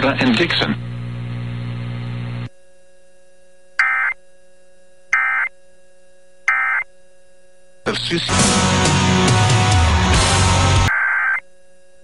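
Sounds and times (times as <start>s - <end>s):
steady radio hum: 0.0s - 2.5s, 7.8s - 8.4s.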